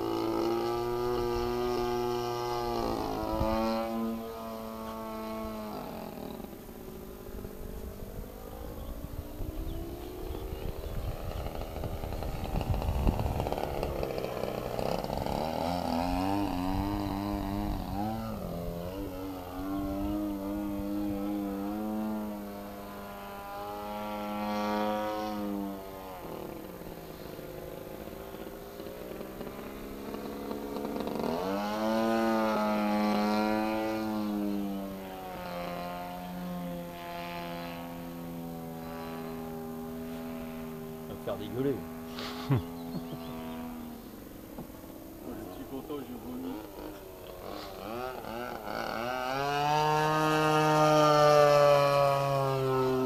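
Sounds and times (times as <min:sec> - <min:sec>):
model plane engine: 0:00.0 - 0:53.0
wind rumble on microphone: 0:07.2 - 0:21.7.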